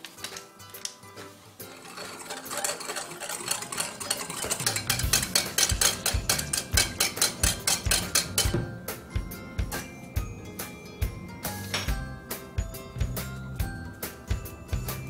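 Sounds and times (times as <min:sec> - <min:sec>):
whisk rattling against glass bowl: 0:01.6 - 0:08.6
background music with beat: 0:04.3 - 0:15.0.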